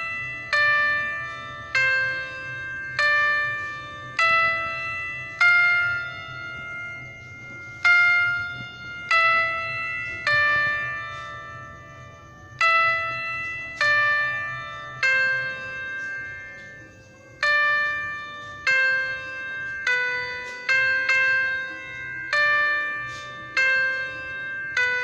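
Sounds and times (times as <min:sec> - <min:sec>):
slow bell-like melody: 0:00.0 - 0:25.0.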